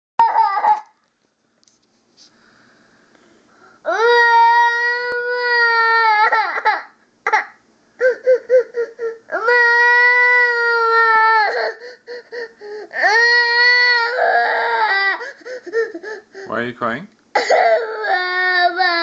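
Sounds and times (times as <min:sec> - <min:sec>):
girl crying: 0:00.2 - 0:01.0, 0:03.9 - 0:16.5, 0:17.4 - 0:19.0
gasping sobs: 0:11.3 - 0:13.2, 0:14.2 - 0:16.5.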